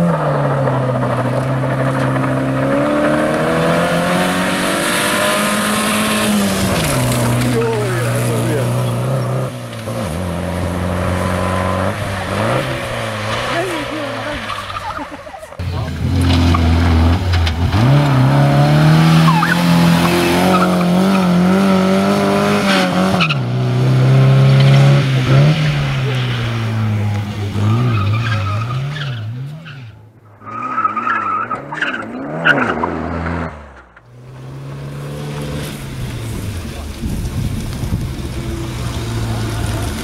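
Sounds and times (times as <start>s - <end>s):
car engine revving hard: 0.0s - 29.8s, 30.8s - 40.0s
tyre squeal: 19.2s - 21.3s.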